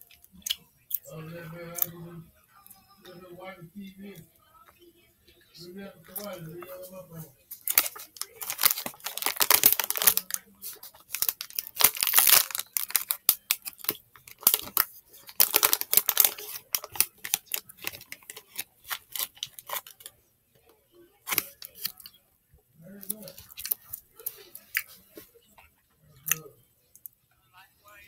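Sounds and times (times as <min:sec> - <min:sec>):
wrapper crinkling: 0:07.5 - 0:20.1, 0:21.2 - 0:22.1, 0:23.0 - 0:25.0.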